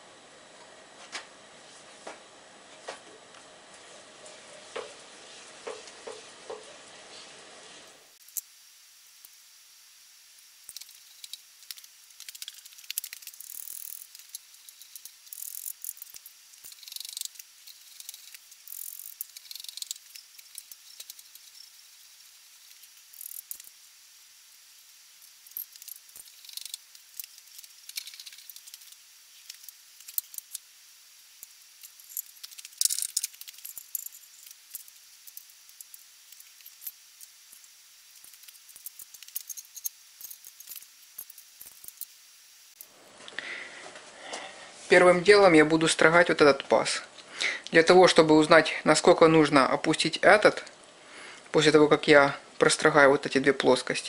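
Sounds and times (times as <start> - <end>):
spanner turning a clamp nut: 10.7 - 21.9, 22.6 - 23.7, 25.5 - 30.6.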